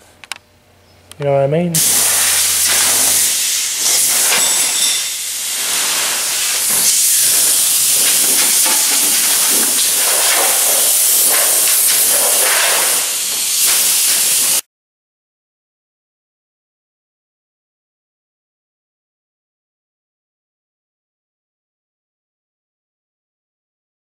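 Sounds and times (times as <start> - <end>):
paint spraying hiss: 1.8 - 14.6.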